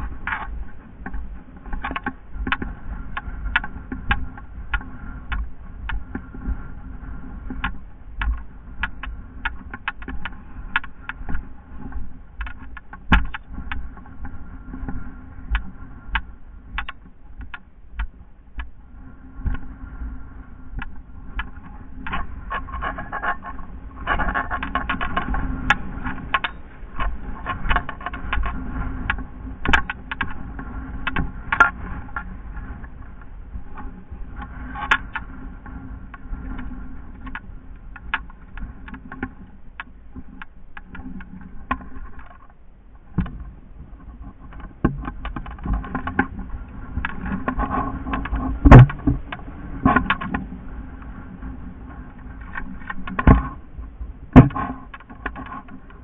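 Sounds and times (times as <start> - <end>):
gear rattling and knocking: 7.5 - 14.2, 43.2 - 50.5, 54.3 - 56.0.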